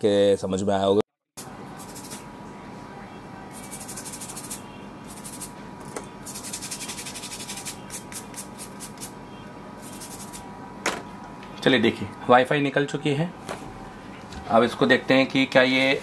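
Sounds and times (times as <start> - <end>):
tools scratching circuit board: 1.8 - 2.2, 3.5 - 5.6, 6.2 - 9.1, 9.8 - 10.4.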